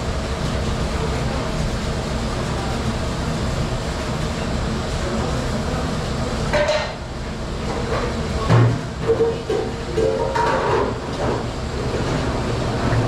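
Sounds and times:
dishwashing machinery rumble: 0.0s - 13.0s
dishes and pans clattering: 6.5s - 7.0s, 7.8s - 11.3s.

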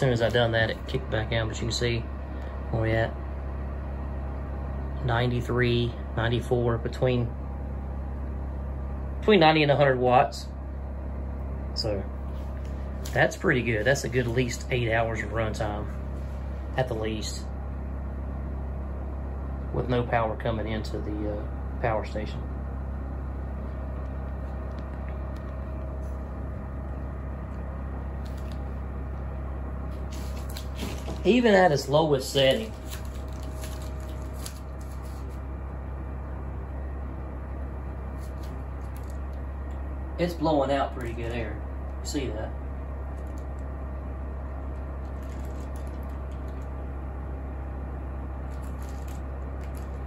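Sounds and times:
portable air conditioner humming: 0.0s - 50.0s
plastic bag rustling: 28.1s - 28.7s, 29.9s - 31.5s, 32.2s - 35.5s, 38.1s - 39.4s, 45.0s - 46.8s, 48.4s - 50.0s.

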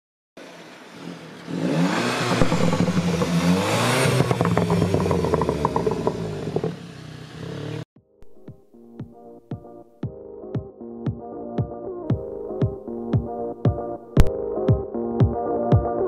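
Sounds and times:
car accelerating past: 0.5s - 7.8s
exhaust crackles: 1.4s - 7.8s.

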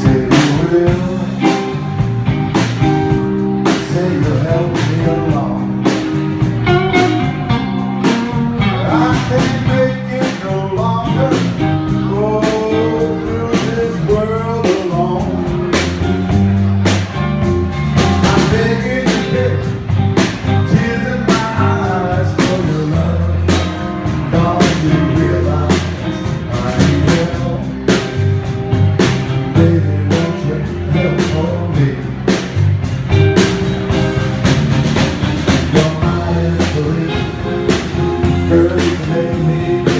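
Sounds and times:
bass guitar: 0.0s - 39.9s
drum kit beat: 0.0s - 39.9s
electric guitar: 0.0s - 39.9s
person singing lead: 6.7s - 15.9s.

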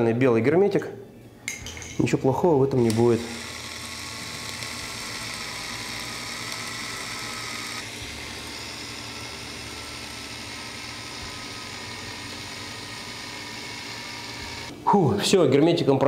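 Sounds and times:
electric caulking gun motor whine: 2.8s - 14.7s.

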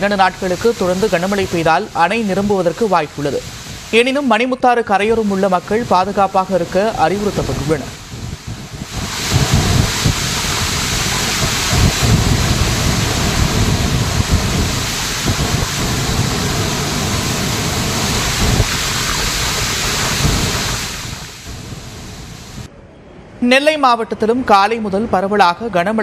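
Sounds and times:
low water rumble: 0.0s - 22.7s
river rushing over rocks: 5.2s - 22.6s.

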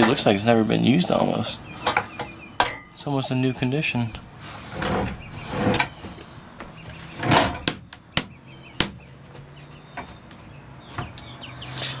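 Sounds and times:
stove sliding scraping swish: 4.5s - 6.1s.

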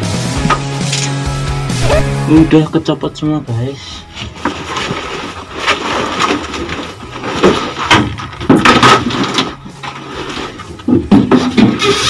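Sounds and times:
panel rustling and scraping: 4.1s - 12.0s.

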